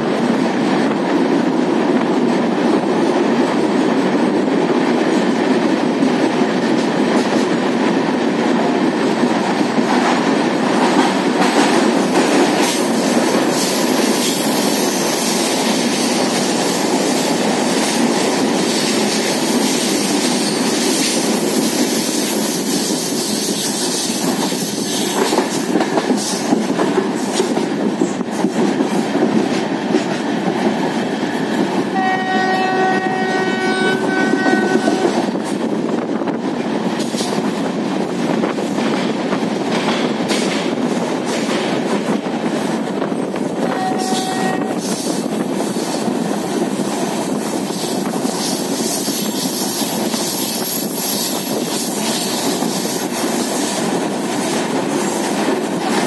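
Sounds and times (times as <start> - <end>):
clickety-clack of rail joints: 0.0 - 56.0
train wheel and wind noise: 0.0 - 56.0
locomotive horn: 31.9 - 35.2, 43.6 - 44.8.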